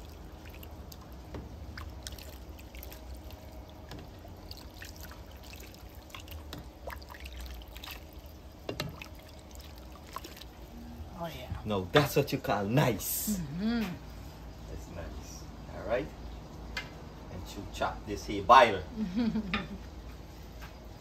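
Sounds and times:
liquid bubbling in a pot: 0.0s - 18.9s.

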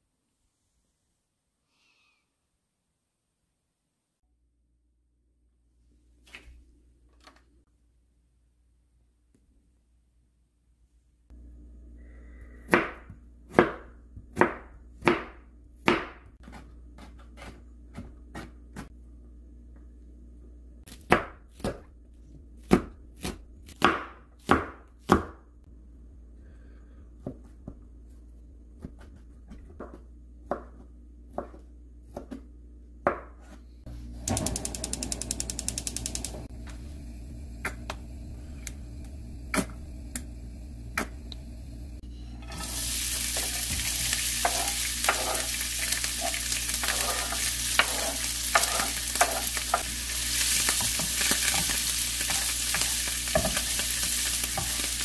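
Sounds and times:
gas stove igniter clicks: 34.3s - 36.8s
vegetables sizzling in a pan: 34.6s - 55.0s.

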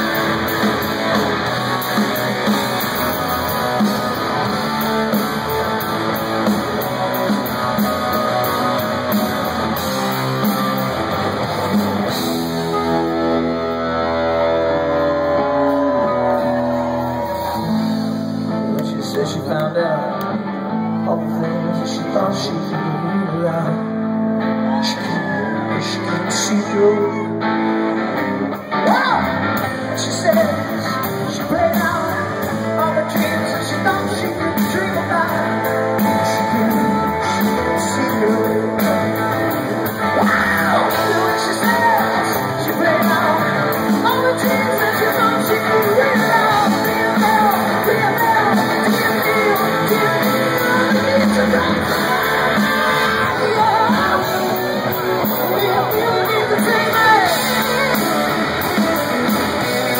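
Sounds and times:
drums: 0.0s - 59.9s
electric guitars: 0.0s - 59.9s
man singing: 15.5s - 59.9s.

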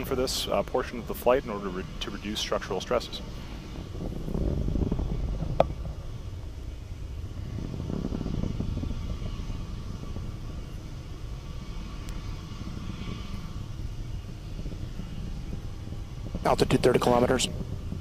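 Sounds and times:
rocket engines rumbling: 0.0s - 18.0s.

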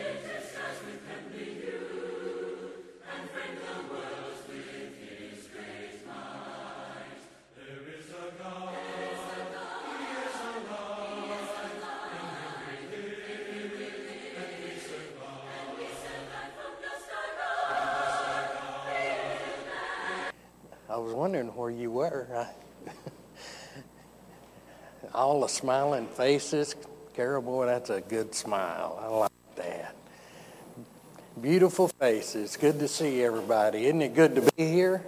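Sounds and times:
choir singing unaccompanied: 0.0s - 20.4s.

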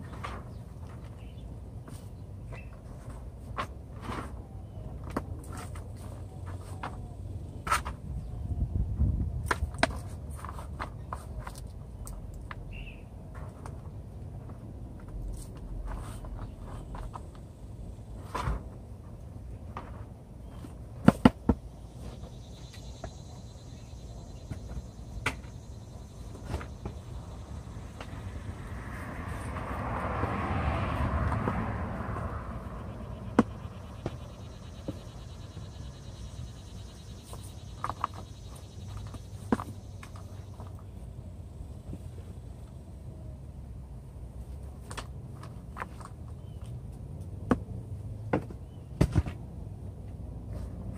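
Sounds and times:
plastic pots being handled: 0.0s - 8.4s, 9.4s - 17.5s
car passing by: 25.8s - 37.2s.

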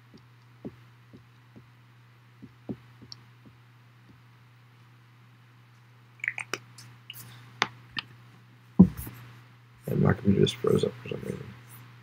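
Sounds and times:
low steady hum: 0.0s - 12.0s
soft taps: 2.4s - 4.2s, 8.8s - 9.2s.

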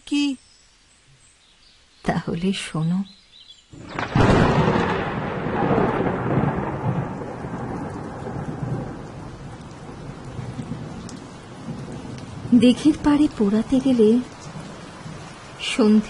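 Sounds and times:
heavy rain hiss: 3.7s - 16.0s
thunderclap rolling: 3.8s - 15.3s.

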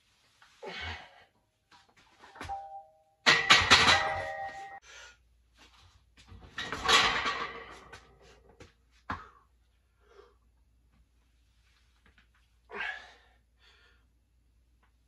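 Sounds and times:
weight plates clanking: 3.3s - 4.8s, 6.6s - 7.9s.

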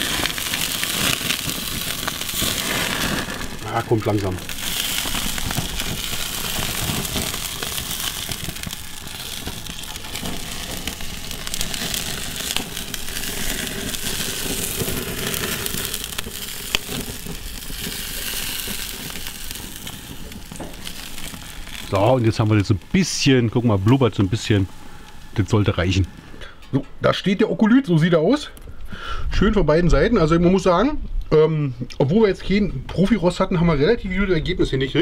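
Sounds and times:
fat bubbling: 0.0s - 26.5s
steak fat crackling and sizzling: 0.0s - 27.1s.

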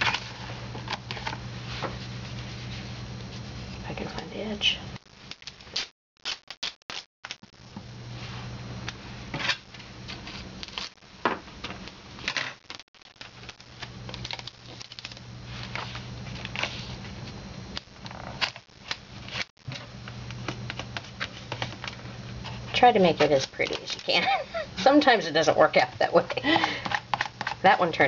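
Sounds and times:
steady low hum: 0.0s - 5.8s, 7.3s - 28.0s
adhesive tape crackling and rustling: 5.0s - 7.6s, 9.8s - 11.0s, 11.6s - 19.8s.

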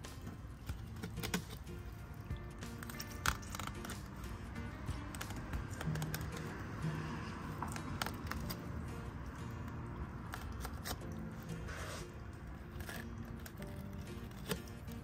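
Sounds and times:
quiet background music: 0.0s - 15.0s
knife clicking and scraping on bones: 0.6s - 4.2s, 4.9s - 6.6s, 10.3s - 11.6s, 12.6s - 15.0s.

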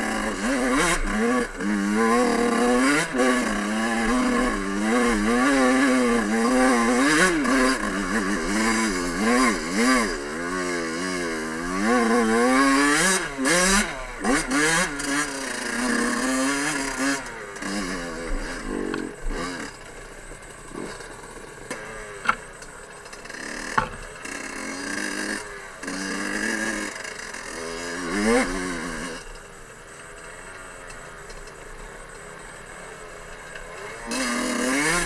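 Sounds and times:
two-stroke motorbike engine revving: 0.0s - 35.0s
sharp clicks: 20.7s - 24.1s.

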